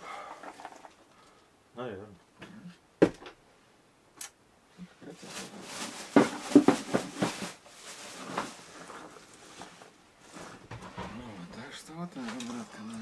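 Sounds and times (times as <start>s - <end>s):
rustling: 4.7s - 13.0s.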